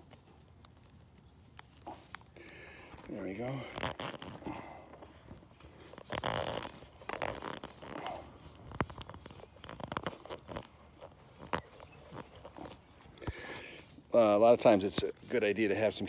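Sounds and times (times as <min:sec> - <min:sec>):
vinyl hose rubbing and scraping: 0:00.0 - 0:16.0.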